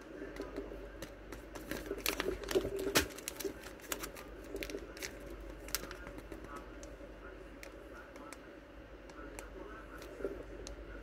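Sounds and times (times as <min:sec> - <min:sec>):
plastic packaging crinkling and clicking: 0:00.4 - 0:07.0.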